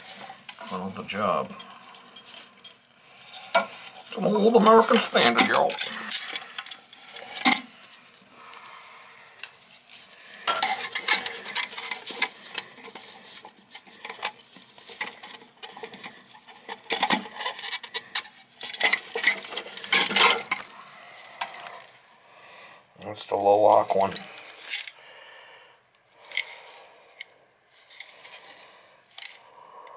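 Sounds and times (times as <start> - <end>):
plastic clicks and scraping in toilet tank: 10.4 - 20.7.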